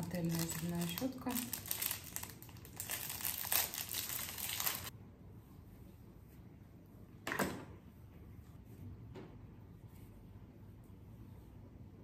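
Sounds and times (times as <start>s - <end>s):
crinkling and rustling handling noise: 0.0s - 4.9s.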